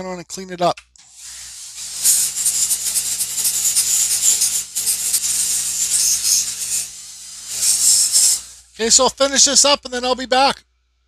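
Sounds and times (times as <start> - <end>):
abrasive wheel scratching wood: 1.3 - 9.0.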